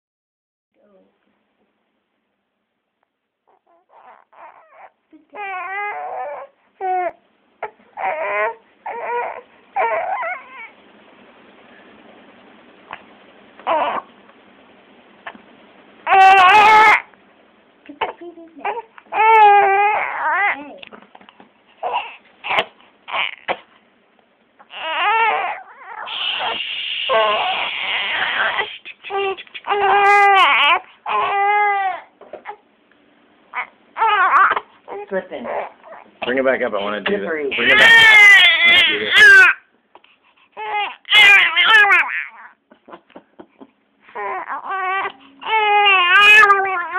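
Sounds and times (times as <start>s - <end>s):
baby crying: 3.5s - 10.8s, 13.6s - 14.1s, 16.1s - 17.1s, 18.0s - 20.8s, 21.8s - 23.7s, 24.6s - 32.6s, 33.5s - 36.2s, 37.5s - 42.6s, 44.1s - 46.9s
steady hiss: 26.1s - 27.3s.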